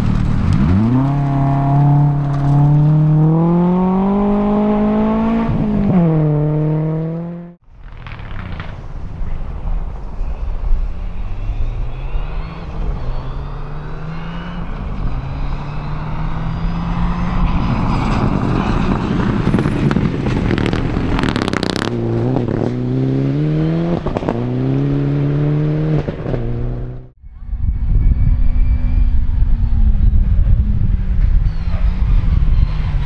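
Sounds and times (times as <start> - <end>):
gravel rattling and scraping: 0.0 - 1.3, 7.7 - 10.9, 17.4 - 22.2
exhaust cracks: 0.0 - 6.4, 7.6 - 10.1, 17.3 - 22.8
rally car engine accelerating: 0.0 - 8.8, 11.9 - 27.1.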